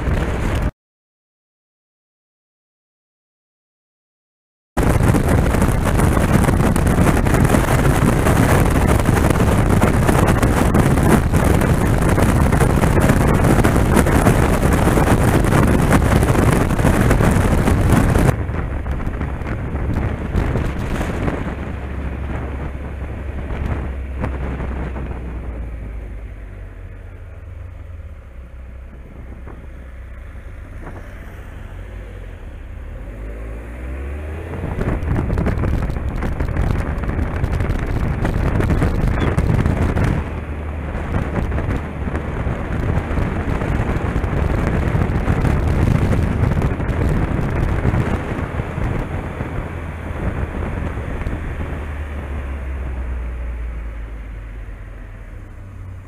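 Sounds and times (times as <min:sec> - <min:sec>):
heavy wind on microphone: 0:00.0 - 0:00.7, 0:04.8 - 0:56.0
motorcycle engine humming: 0:04.8 - 0:56.0.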